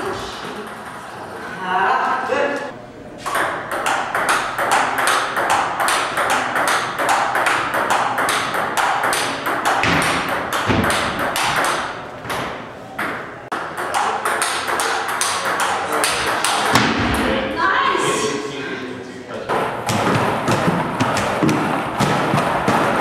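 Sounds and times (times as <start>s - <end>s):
table tennis ball clicking: 3.3s - 12.4s, 13.0s - 16.8s.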